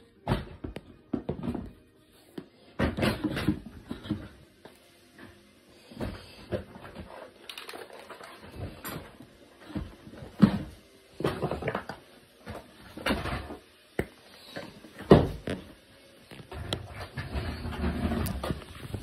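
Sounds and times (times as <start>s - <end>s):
objects knocking and thumping: 0.2s - 1.8s, 2.8s - 4.4s.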